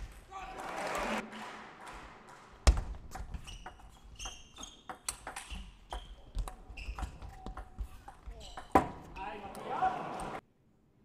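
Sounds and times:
shoes squeaking on floor: 3.2 - 9.2.

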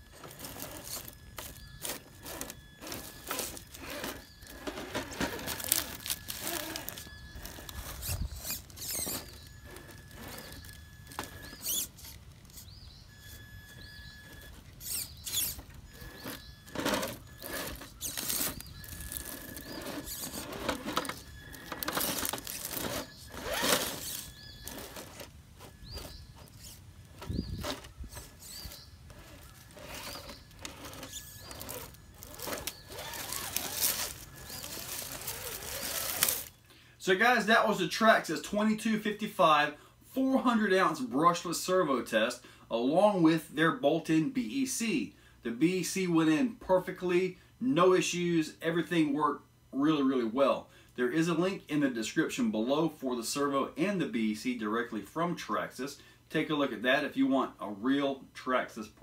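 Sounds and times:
electric motor whine: 0.0 - 36.6
tyres scraping and crunching on rock: 0.0 - 36.6.

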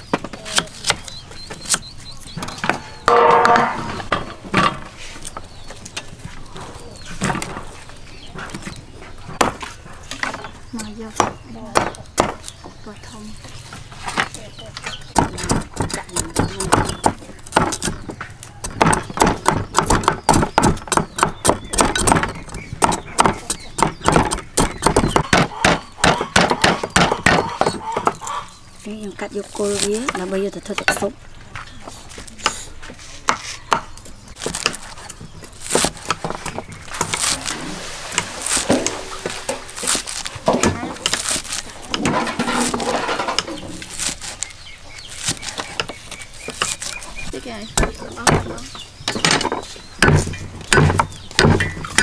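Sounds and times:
cleaver chopping on wooden block: 11.2 - 12.5, 15.1 - 28.3, 47.7 - 52.0.

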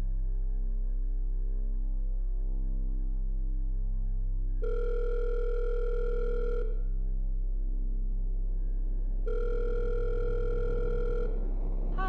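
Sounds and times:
telephone ringback tone: 4.6 - 6.8, 9.3 - 11.4.

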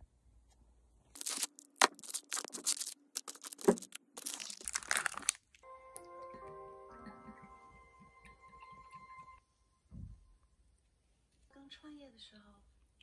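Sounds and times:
cellophane wrappers crinkling: 1.1 - 5.6
soft music with held notes: 5.6 - 9.9.

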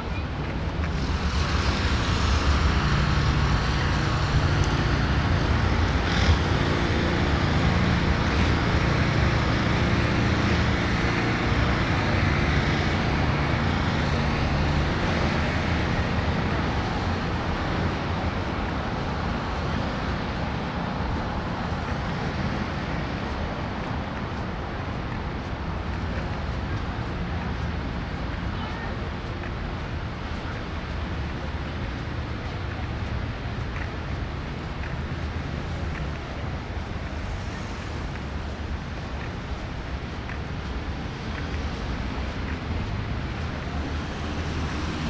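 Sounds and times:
passing cars: 0.0 - 45.0.

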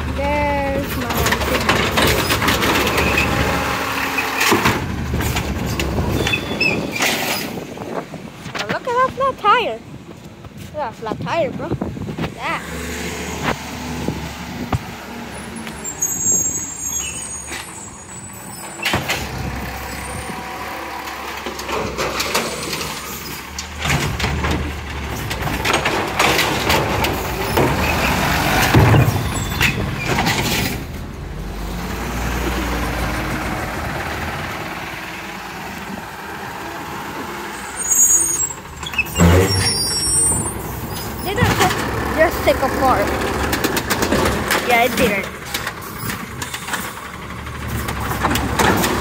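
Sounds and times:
garbage truck engine running: 0.0 - 11.6, 12.5 - 49.0
knocks and clatter: 0.8 - 9.3, 21.1 - 31.1, 40.3 - 49.0.

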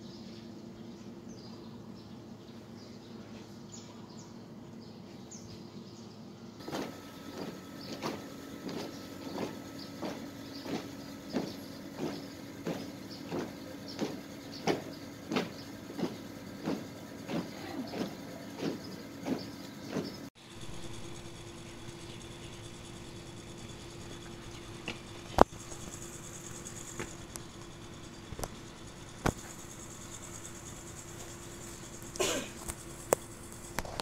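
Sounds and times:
boots marching on pavement: 6.6 - 20.3, 26.7 - 27.4.

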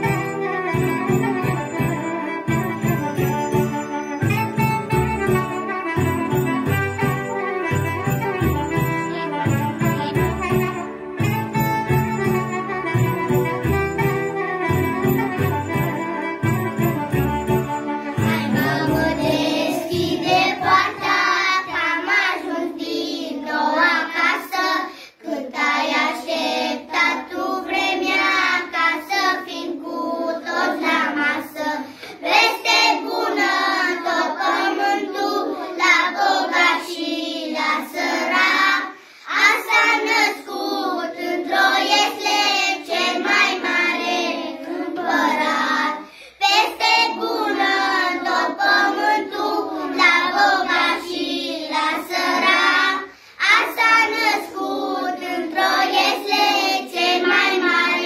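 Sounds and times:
children singing in unison: 17.8 - 58.0.

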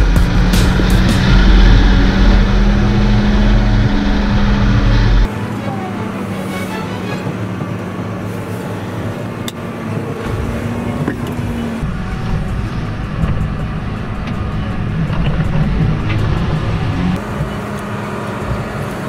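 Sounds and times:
tractor diesel engine rumble: 0.0 - 19.0.

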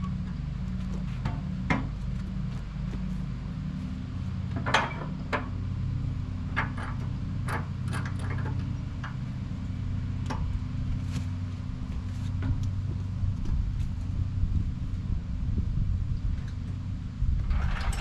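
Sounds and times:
sawmill engine idling: 0.0 - 15.2
log clanking and knocking: 4.5 - 5.5.

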